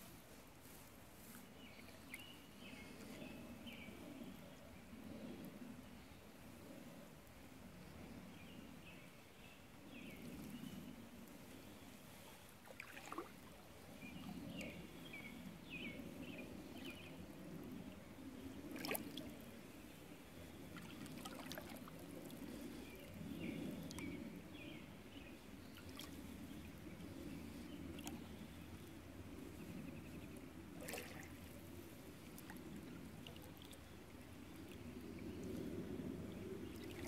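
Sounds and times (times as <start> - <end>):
paddle swishing and dripping: 12.6 - 13.6, 20.8 - 22.4, 30.8 - 31.5.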